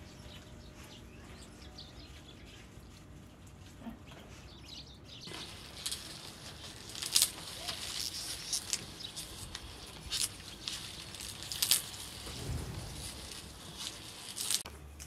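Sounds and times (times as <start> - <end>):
green onion stalks crackling: 5.2 - 15.0.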